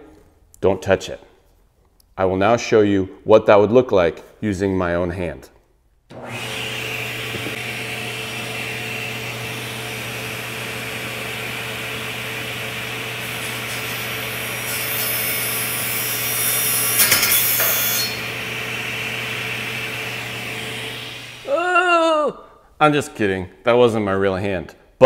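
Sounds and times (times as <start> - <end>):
table saw humming: 6.1 - 21.7
saw blade grinding: 13.2 - 18.3.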